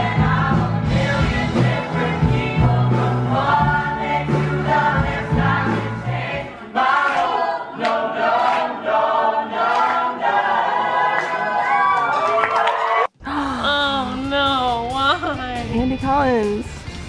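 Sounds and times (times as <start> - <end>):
musical accompaniment: 0.0 - 9.8
group singing in harmony: 0.0 - 11.9.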